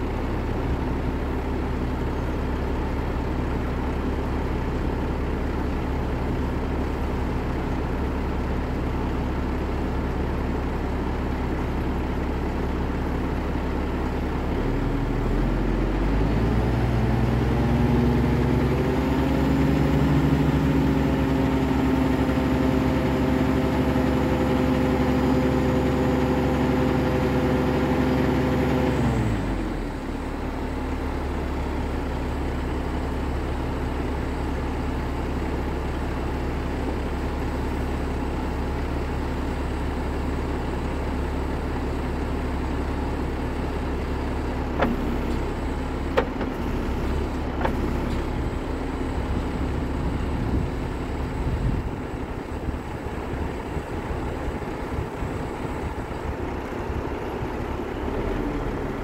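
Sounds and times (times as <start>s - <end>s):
diesel truck engine revving: 14.6s - 32.0s, 44.6s - 59.0s.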